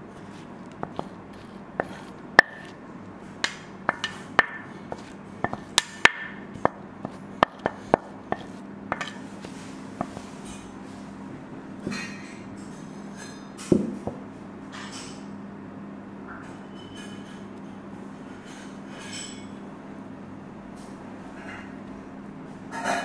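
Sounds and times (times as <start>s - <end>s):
faint steady hum: 0.0s - 13.2s
spoon tapping against dish: 3.4s - 6.3s.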